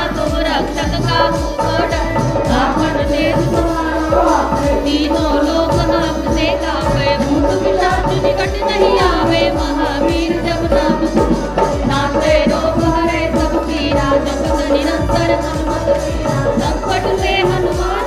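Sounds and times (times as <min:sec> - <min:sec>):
dholak drum beat: 0:00.0 - 0:18.0
woman singing into a microphone: 0:00.0 - 0:18.0.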